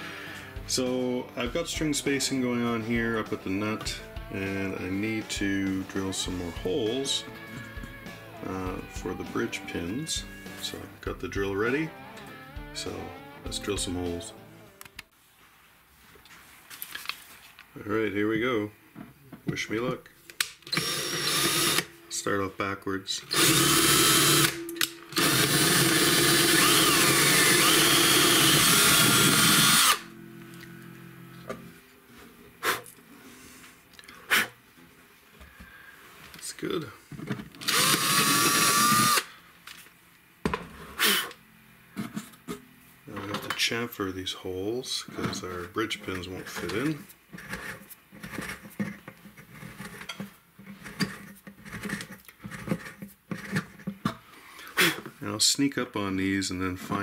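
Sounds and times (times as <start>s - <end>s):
cordless drill whining: 20.7s - 21.9s, 23.3s - 30.1s, 37.6s - 39.4s
reamer scraping wood: 45.2s - 54.0s.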